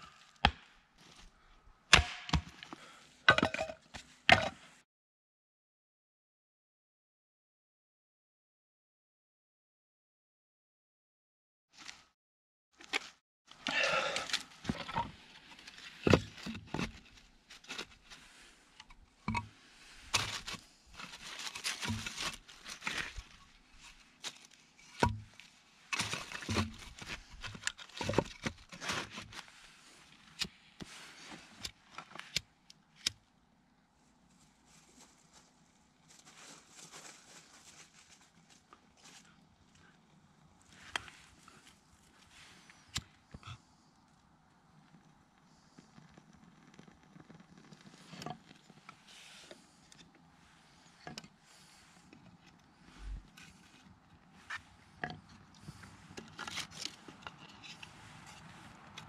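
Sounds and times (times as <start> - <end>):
dry leaves rustling: 34.7 - 39.2.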